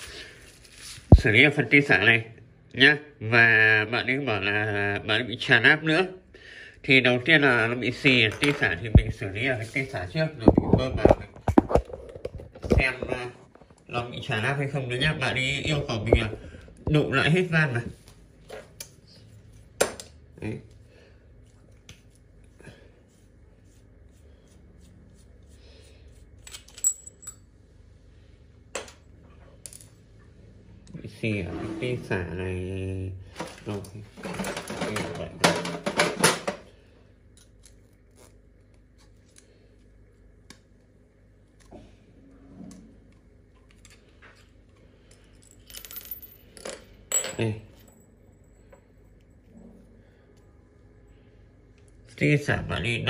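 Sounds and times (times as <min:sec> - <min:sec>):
small metal parts clinking: 0:26.4 - 0:27.5, 0:45.1 - 0:48.7
metal parts rattling: 0:26.5 - 0:27.4, 0:34.2 - 0:36.4.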